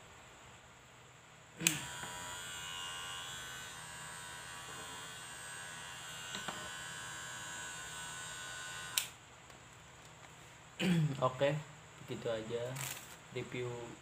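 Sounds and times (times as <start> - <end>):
hair clipper switch click: 1.6 - 2.2, 8.9 - 9.2
electric hair clipper buzzing: 1.6 - 9.2
small click: 9.0 - 10.2.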